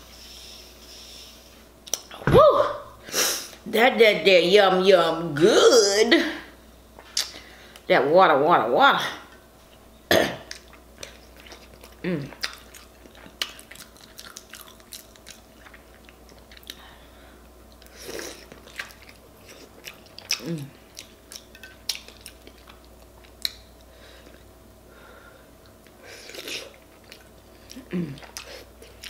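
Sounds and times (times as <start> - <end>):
wet chewing with lip smacks: 10.5 - 16.8, 17.7 - 24.4, 25.6 - 29.0.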